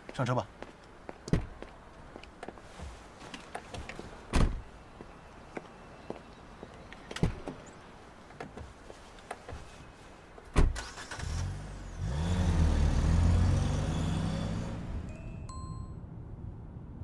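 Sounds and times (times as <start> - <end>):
car door slamming shut: 4.3 - 4.6, 10.5 - 10.8
car engine starting and revving: 10.8 - 15.1.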